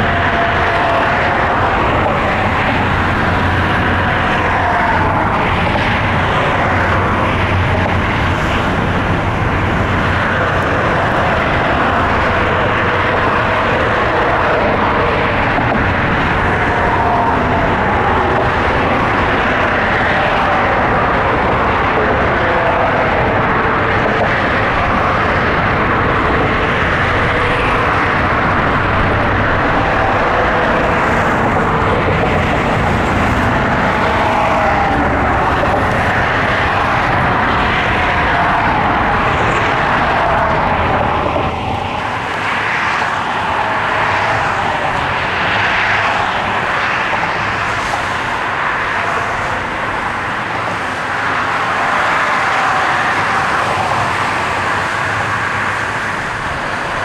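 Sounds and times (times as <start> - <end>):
faint wavering engine whine: 0.0 - 57.0
loud rushing noise: 0.0 - 57.0.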